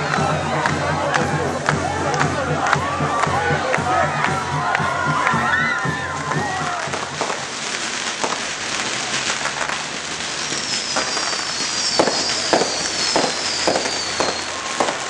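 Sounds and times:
fireworks crackling: 0:00.0 - 0:15.0
fireworks sharp bangs: 0:04.6 - 0:15.0
fireworks whistles falling in pitch: 0:05.1 - 0:15.0.

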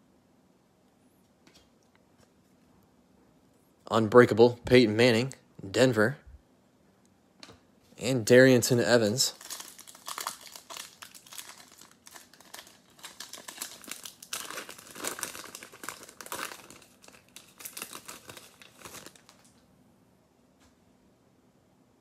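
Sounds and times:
foil wrapper tearing and crinkling: 0:09.3 - 0:19.6.

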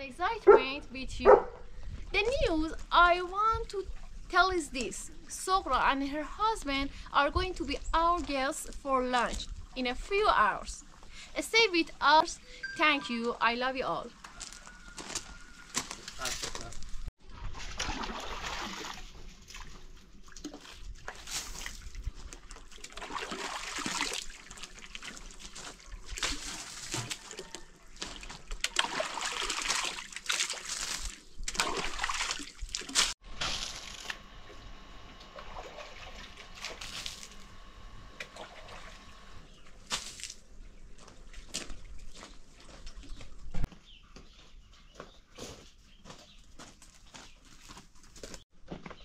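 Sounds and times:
water sloshing and splashing: 0:01.8 - 0:04.3, 0:17.2 - 0:34.1, 0:35.2 - 0:37.4, 0:38.2 - 0:43.7.

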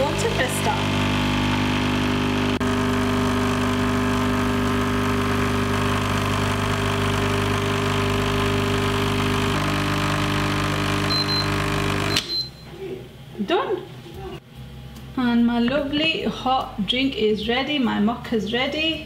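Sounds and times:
coffee machine pump humming: 0:00.0 - 0:12.3.

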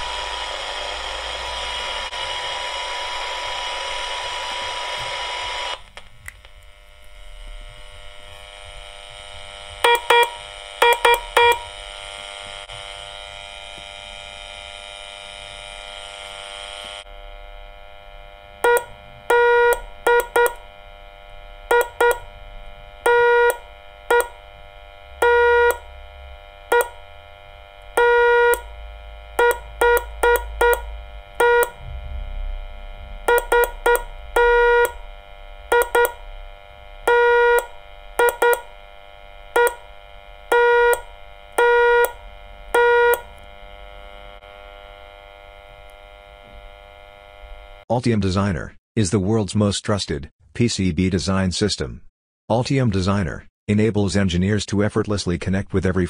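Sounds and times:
faint steady hum: 0:00.0 - 0:47.8
morse code beeps: 0:09.8 - 0:11.7, 0:18.6 - 0:20.6, 0:21.7 - 0:22.3, 0:23.0 - 0:24.4, 0:25.2 - 0:25.9, 0:26.7 - 0:27.0, 0:28.0 - 0:28.7, 0:29.4 - 0:31.9, 0:33.3 - 0:35.0, 0:35.7 - 0:36.2, 0:37.1 - 0:38.7, 0:39.6 - 0:39.9, 0:40.5 - 0:43.3.

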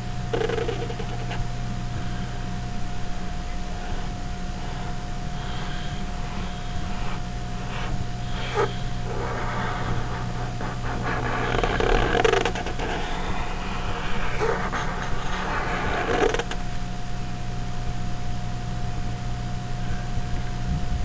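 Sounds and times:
electric fan humming: 0:00.0 - 0:21.0
pen scratching on paper: 0:03.8 - 0:16.7.

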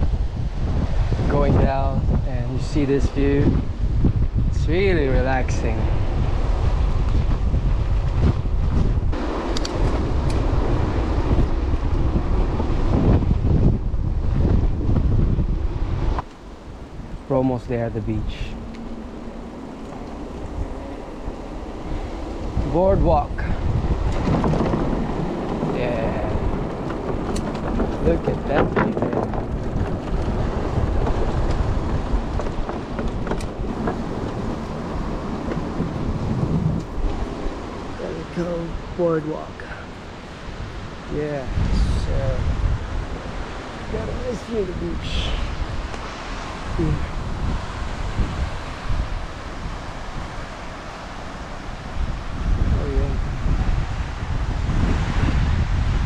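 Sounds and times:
bike rolling on trail rumble: 0:00.0 - 0:56.0
wind buffeting microphone: 0:00.0 - 0:56.0
tyre noise: 0:06.7 - 0:38.6
bike clicks and rattles: 0:08.1 - 0:10.5, 0:24.0 - 0:36.0.

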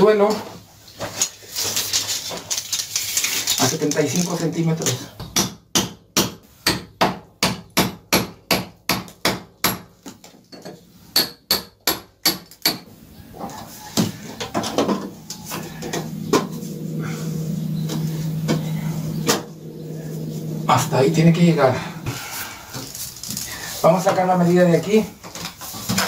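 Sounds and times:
low hum: 0:13.0 - 0:23.5.

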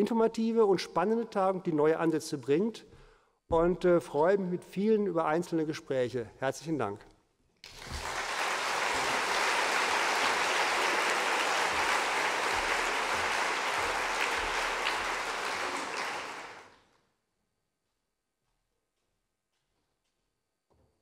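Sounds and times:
audience applauding: 0:07.6 - 0:16.8.

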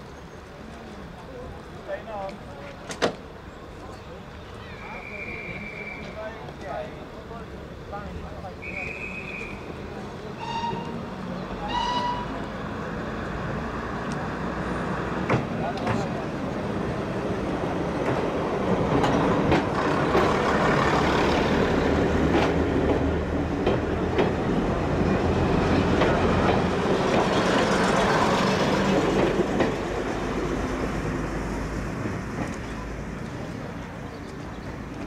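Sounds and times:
diesel train engine drone: 0:00.0 - 0:35.0
train wheels clicking over rail joints: 0:17.5 - 0:33.6.

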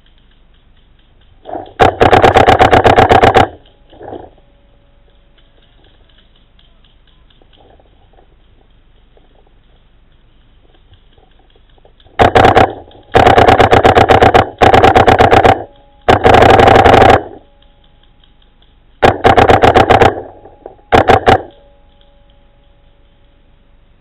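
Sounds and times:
paintball marker rapid firing: 0:01.2 - 0:04.4, 0:12.0 - 0:17.4, 0:19.0 - 0:21.6.

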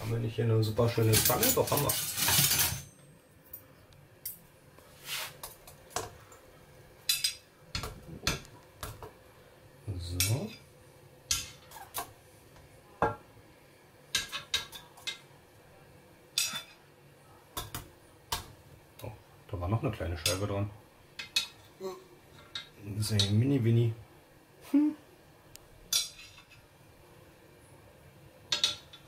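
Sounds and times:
metal tongs clinking on dishes: 0:01.0 - 0:03.6, 0:07.1 - 0:08.5, 0:16.4 - 0:16.8, 0:21.2 - 0:21.6, 0:25.9 - 0:26.6, 0:28.5 - 0:29.0.

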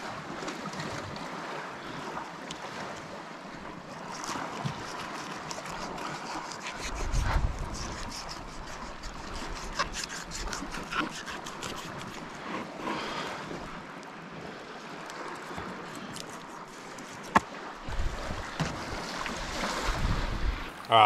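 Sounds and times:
fish scraping on plastic board: 0:04.0 - 0:13.3, 0:15.5 - 0:17.5
wind hiss on microphone: 0:06.8 - 0:10.7, 0:17.8 - 0:20.8.

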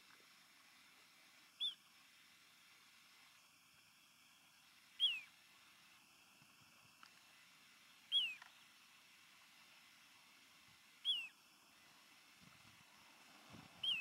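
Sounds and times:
faint background hiss: 0:00.0 - 0:14.0
bird whistling call: 0:01.6 - 0:01.8, 0:05.0 - 0:05.3, 0:08.1 - 0:08.5, 0:11.0 - 0:11.4, 0:13.8 - 0:14.0.

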